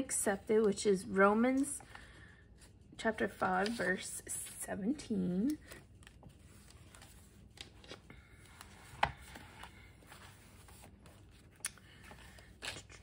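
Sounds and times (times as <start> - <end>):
thin pages rustling: 5.5 - 13.0.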